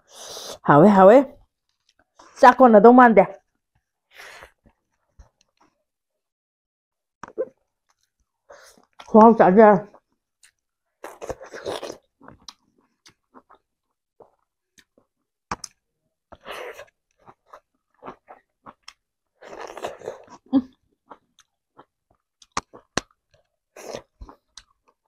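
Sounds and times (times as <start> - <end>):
wet mouth clicks: 22.4 - 23.2.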